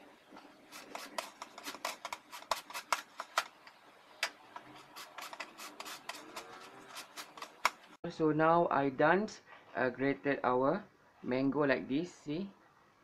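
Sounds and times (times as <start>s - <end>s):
mango shredded on plastic grater: 0.7s - 3.3s, 4.7s - 7.8s.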